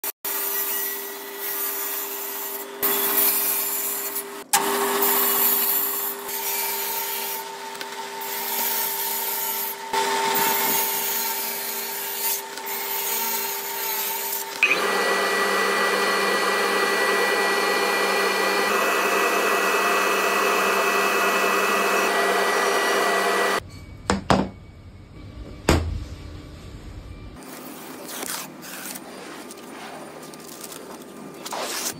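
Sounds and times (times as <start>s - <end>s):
table saw motor whine: 2.8s - 23.6s.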